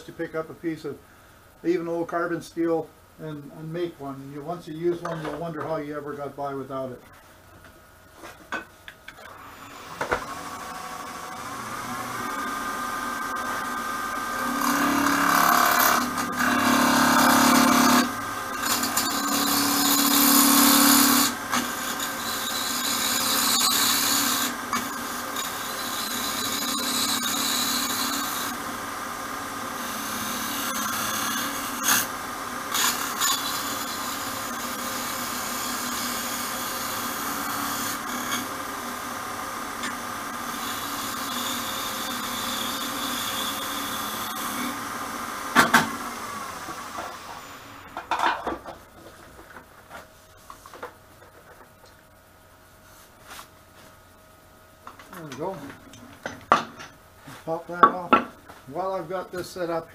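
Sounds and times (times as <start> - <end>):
tool cutting wood hiss: 9.2 - 28.9, 29.7 - 32.1, 32.7 - 39.1, 39.8 - 48.0
lathe motor hum: 9.2 - 48.0.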